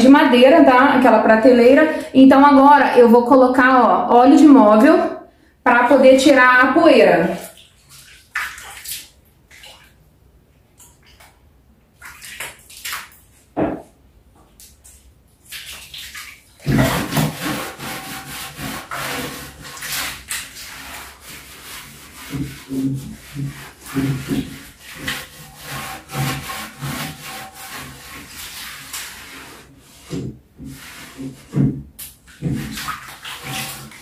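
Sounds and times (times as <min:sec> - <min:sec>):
cloth rubbing on wooden shelf: 0:16.7 - 0:31.8.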